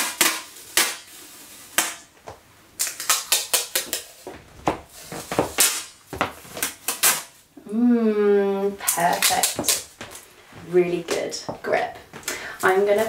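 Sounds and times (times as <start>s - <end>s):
parcel tape snapping and crackling: 0.0s - 7.5s, 8.8s - 10.3s.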